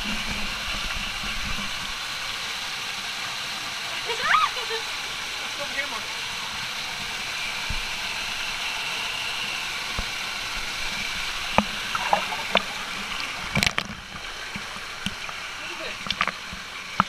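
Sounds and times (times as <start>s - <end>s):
waterfall rushing: 1.7s - 17.0s
water splashes hitting camera: 11.0s - 17.0s.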